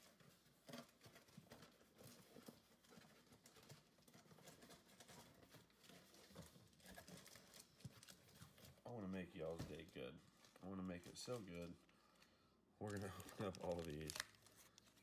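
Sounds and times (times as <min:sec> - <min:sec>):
trading cards tapping and rustling: 0:12.8 - 0:15.0.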